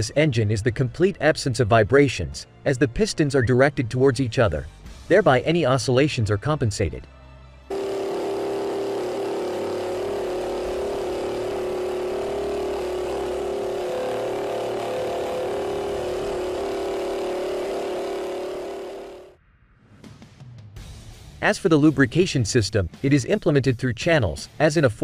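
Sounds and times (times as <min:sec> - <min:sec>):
engine high-pitched hum: 0:07.7 - 0:19.4.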